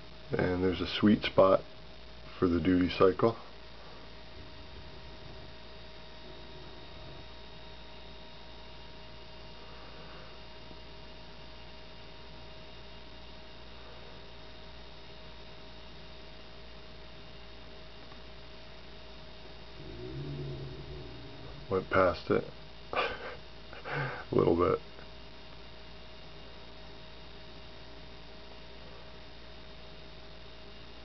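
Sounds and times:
electrical hum with whine: 0.0s - 31.0s
low murmur: 2.2s - 10.2s, 19.4s - 24.0s.

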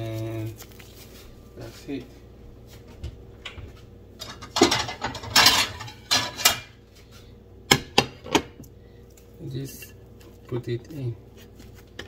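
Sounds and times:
plates scraping on countertop: 4.2s - 6.7s.

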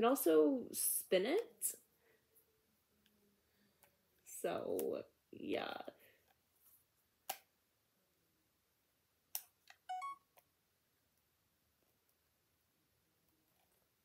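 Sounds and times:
camera two-note beep: 9.9s - 10.2s.

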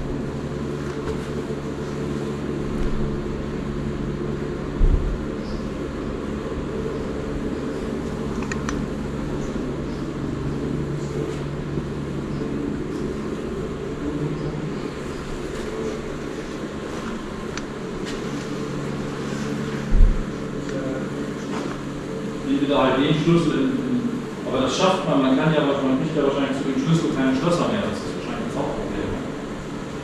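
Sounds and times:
low mechanical hum: 0.0s - 30.0s
low thump: 4.8s - 5.2s, 19.9s - 20.2s.

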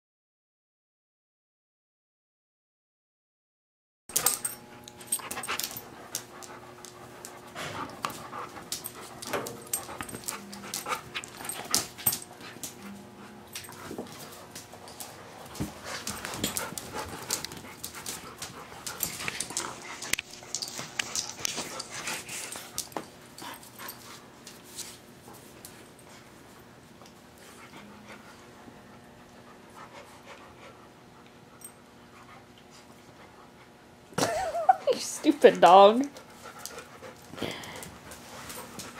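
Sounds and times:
dogs panting: 4.2s - 38.9s
dog panting softly: 5.1s - 11.7s, 27.4s - 33.8s, 34.9s - 38.9s.

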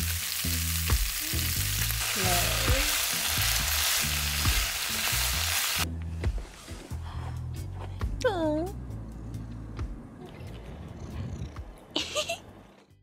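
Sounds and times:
vegetables sizzling in a frying pan: 0.0s - 5.9s.

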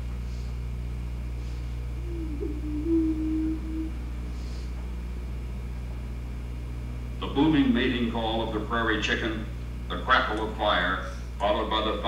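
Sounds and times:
steady low hum: 0.0s - 12.0s
low hollow hooting bird call: 1.8s - 4.6s.

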